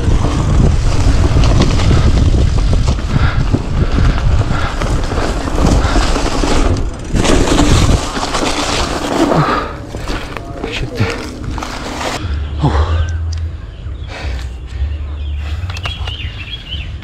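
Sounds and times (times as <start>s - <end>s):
bike tyres on grass: 0.0s - 13.0s
wind rumble on microphone: 0.0s - 17.0s.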